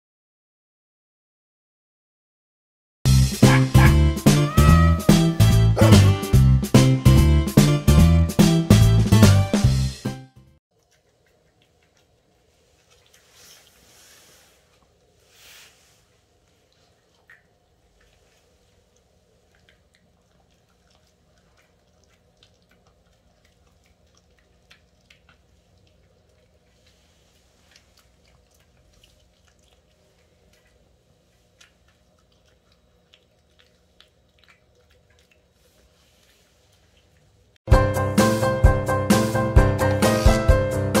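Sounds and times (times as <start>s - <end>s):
wet mouth sounds: 3.1s - 8.1s, 10.7s - 37.6s
teeth crunching and clicking: 10.7s - 13.2s, 19.0s - 27.0s, 27.7s - 35.6s
dog chewing treat: 10.7s - 13.9s, 16.6s - 37.4s.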